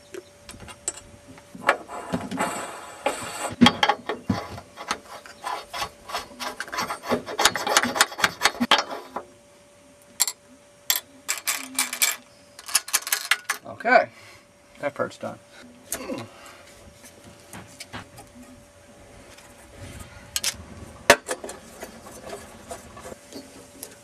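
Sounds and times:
metal clicks rattles and scraping: 10.2s - 13.7s.

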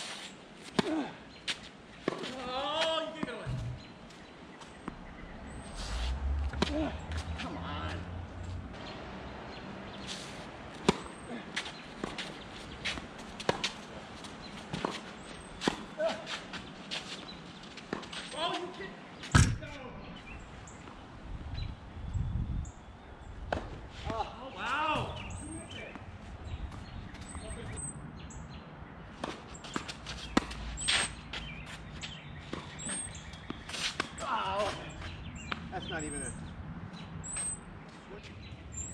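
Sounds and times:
footsteps on court: 0.0s - 5.1s, 10.0s - 19.4s
footsteps on tennis court: 0.0s - 19.4s, 25.6s - 27.5s, 29.2s - 35.7s, 37.3s - 38.6s
birds chirping: 1.2s - 38.9s
tennis ball bouncing: 3.2s - 5.5s, 10.8s - 13.9s, 29.2s - 30.6s.

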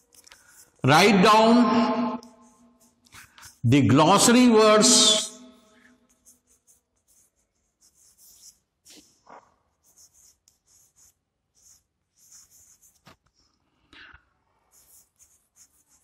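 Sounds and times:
chalk scratching on blackboard: 0.0s - 0.8s, 2.2s - 3.7s, 6.0s - 13.4s, 14.6s - 16.0s.

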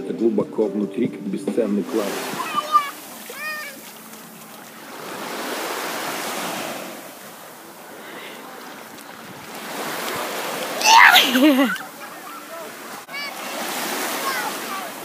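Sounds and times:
waves washing on sandy beach: 1.6s - 15.0s
loud splashing: 1.8s - 7.2s, 9.4s - 15.0s
child crying out: 2.4s - 3.8s, 10.8s - 11.8s.

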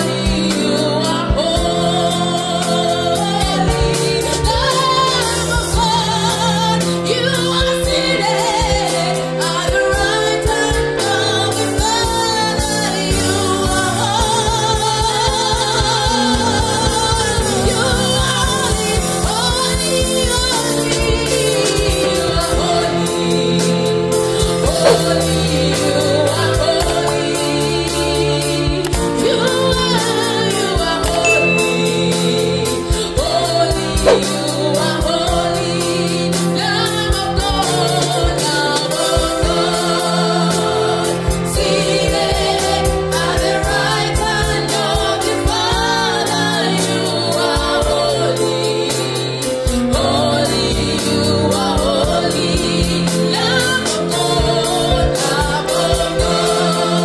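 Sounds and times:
electronic keyboard: 30.7s - 35.8s
drum kit: 31.1s - 35.4s.

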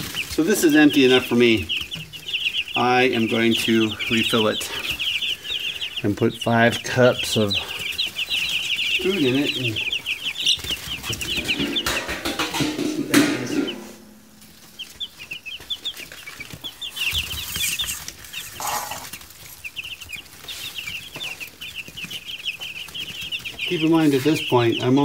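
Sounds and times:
chicks peeping: 0.0s - 25.0s
rustling: 0.0s - 25.0s
sharp knock: 11.3s - 15.0s.

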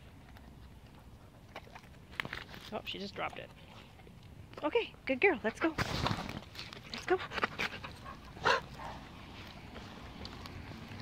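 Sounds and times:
dog panting: 7.0s - 9.2s.

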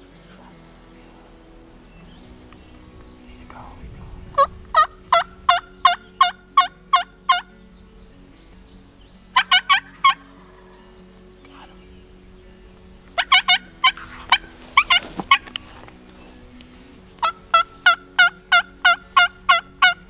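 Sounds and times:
wild turkey yelping: 4.4s - 7.5s, 9.3s - 10.8s, 13.1s - 15.9s, 17.2s - 20.0s.

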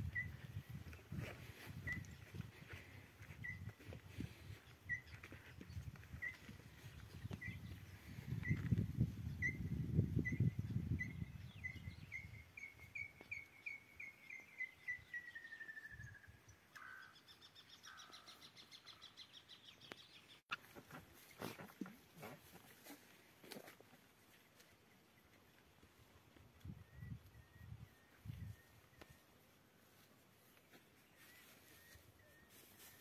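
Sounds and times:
wind rumble on microphone: 0.0s - 12.5s, 26.5s - 28.8s.

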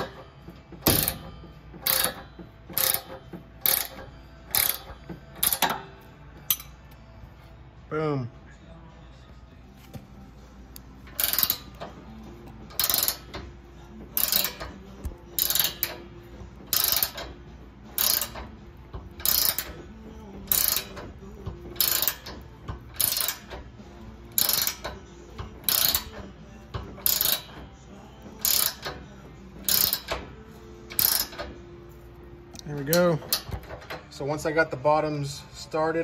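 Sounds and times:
ratchet wrench clicking: 0.8s - 6.8s, 11.0s - 31.6s, 32.5s - 34.0s.

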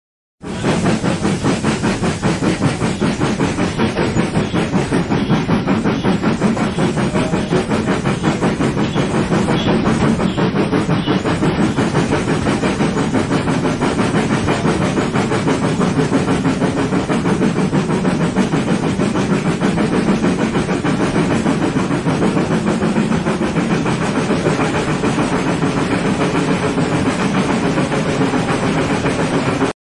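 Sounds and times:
steam locomotive chuffing: 0.4s - 29.7s.

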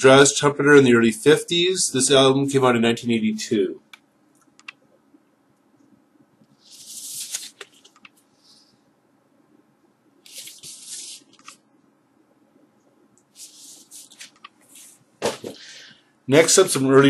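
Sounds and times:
cardboard sleeve rustling and scraping: 13.4s - 15.6s.

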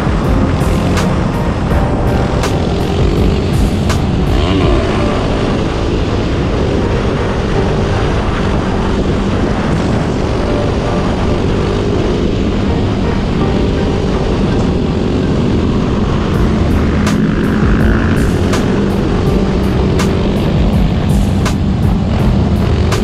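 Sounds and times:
motorcycle engine running: 0.0s - 7.8s, 13.6s - 23.0s
wind rush on microphone: 0.0s - 23.0s.

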